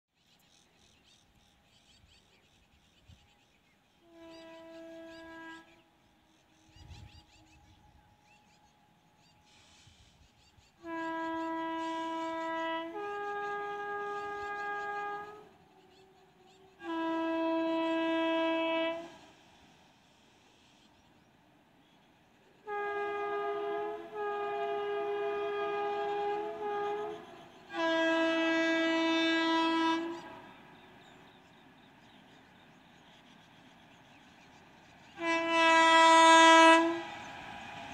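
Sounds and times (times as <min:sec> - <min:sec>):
distant locomotive horn blast: 0:03.9 - 0:10.0, 0:10.8 - 0:19.8, 0:21.8 - 0:33.2, 0:34.8 - 0:37.9.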